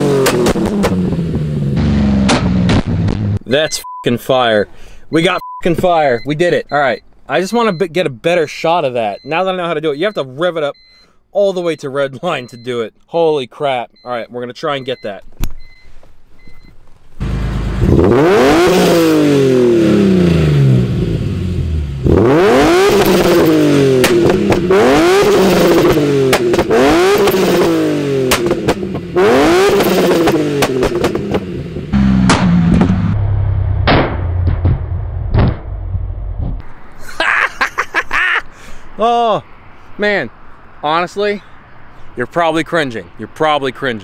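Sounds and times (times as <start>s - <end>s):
car engine revving: 0.0s - 3.5s, 17.2s - 37.0s
exhaust pops and crackles: 0.0s - 3.5s, 22.8s - 36.7s
man talking: 3.4s - 10.8s, 11.4s - 15.3s, 39.0s - 41.5s, 42.1s - 44.0s
car engine idling: 16.2s - 18.5s.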